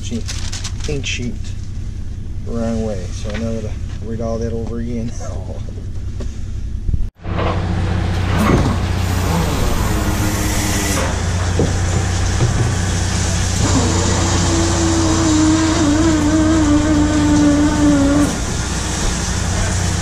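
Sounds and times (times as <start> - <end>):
engine and machinery hum: 0.0 - 20.0.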